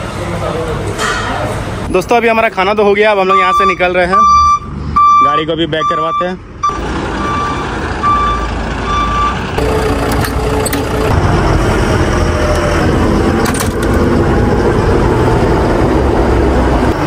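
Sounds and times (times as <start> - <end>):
truck reversing alarm beeping: 3.2 - 11.1
diesel engine running: 5.8 - 17.0.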